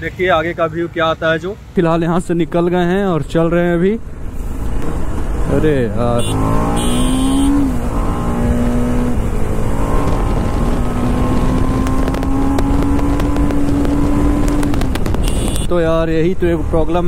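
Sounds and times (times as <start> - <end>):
motorcycle engine running: 6.2 - 7.6, 8.9 - 15.7
wind rushing over microphone: 7.5 - 17.0.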